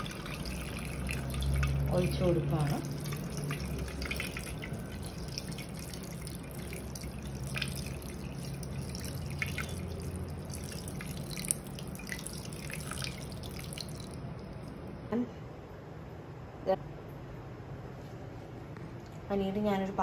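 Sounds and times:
water pouring into strainer: 0.0s - 14.2s
water splashing and dripping into bowl: 0.0s - 14.7s.

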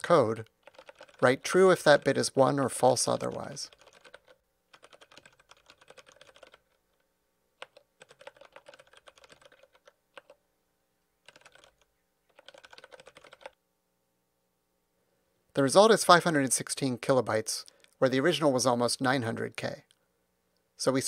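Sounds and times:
typing on computer keyboard: 0.4s - 2.2s, 3.0s - 7.0s, 7.6s - 10.4s, 11.2s - 13.6s.

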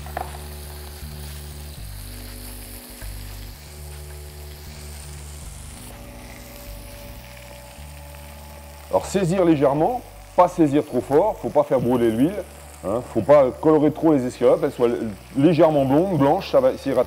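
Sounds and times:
background music: 0.0s - 17.0s
meat sizzling in oil: 0.0s - 17.0s.

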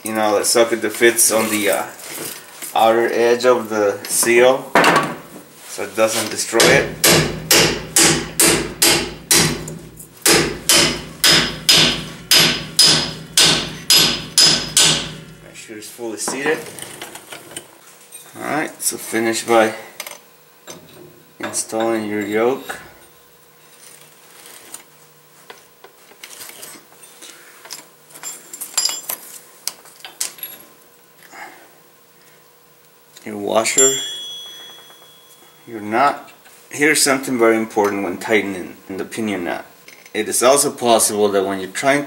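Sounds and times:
ringing metallic clinks: 33.8s - 35.7s.

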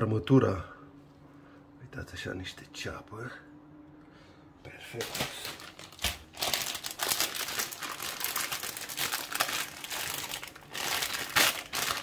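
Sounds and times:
plastic bag crinkling: 5.0s - 12.0s.

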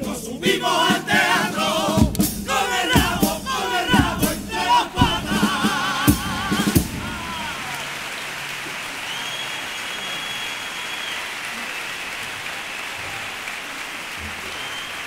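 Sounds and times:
audience applauding: 2.9s - 15.0s
long high whistle: 9.0s - 12.0s, 14.4s - 15.0s.

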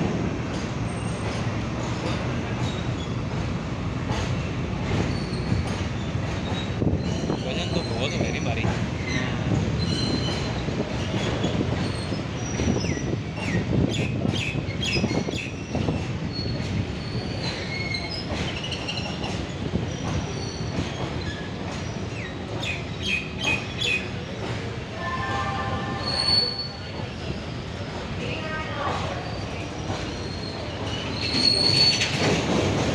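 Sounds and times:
train wheels rumbling on rail: 0.0s - 32.9s
high wheel squeals: 5.1s - 5.6s, 9.0s - 10.6s, 15.0s - 19.1s, 25.8s - 27.5s, 29.2s - 32.2s.

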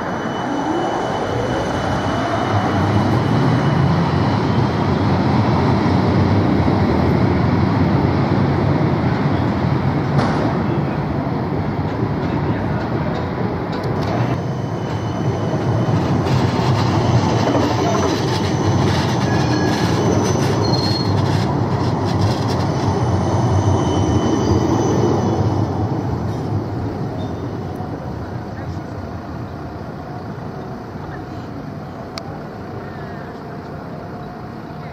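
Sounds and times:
high wheel squeals: 0.0s - 5.0s, 14.1s - 27.5s
tram wheels rumbling on rails: 0.0s - 34.9s.

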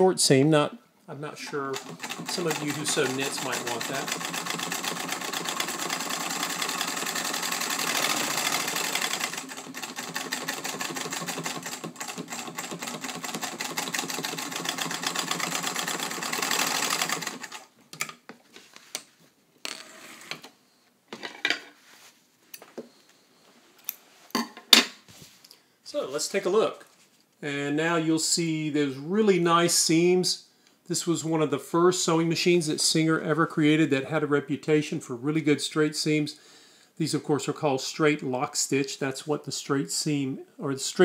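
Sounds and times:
sewing machine stitching: 1.4s - 17.7s.

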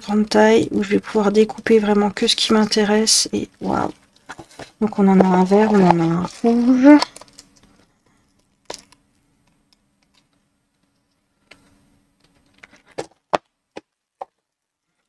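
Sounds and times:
plastic wrapping crinkling: 3.6s - 9.0s.

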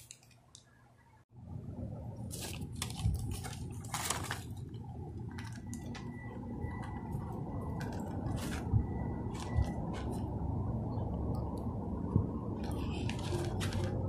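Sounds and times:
low outdoor rumble: 0.9s - 14.0s
plastic wrapping rustling: 2.3s - 6.2s, 12.7s - 14.0s.

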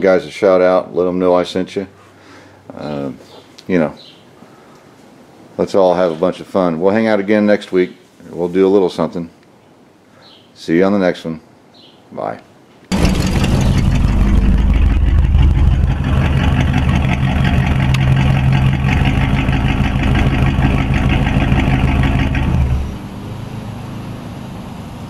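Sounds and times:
steady hum: 12.9s - 23.2s
engine running loudly: 12.9s - 23.3s.

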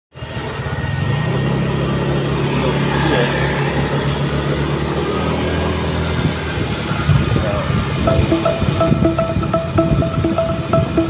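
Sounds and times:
road and wind noise: 0.2s - 8.0s.

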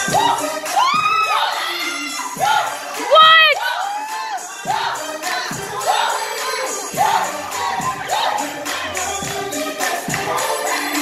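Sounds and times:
high voices whooping and cheering: 0.0s - 4.8s, 5.8s - 9.2s
recorded music over sound system: 0.0s - 11.0s.

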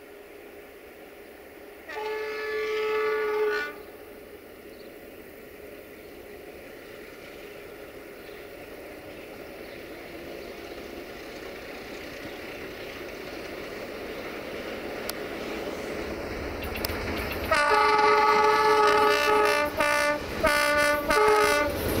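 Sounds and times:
freight train running: 0.0s - 22.0s
locomotive horn blast: 1.8s - 3.9s, 17.5s - 21.9s.

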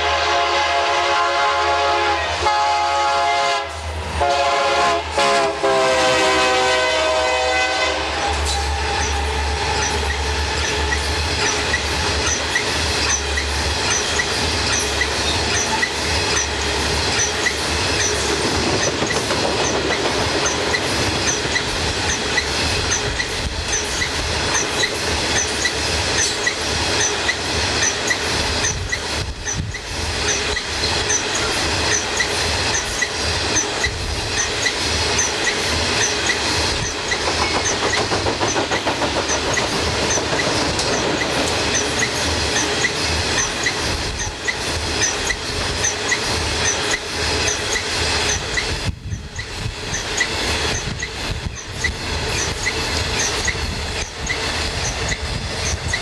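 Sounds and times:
locomotive horn: 0.0s - 9.8s
train rail noise: 0.0s - 56.0s
wheels clicking over rail joints: 6.2s - 56.0s.

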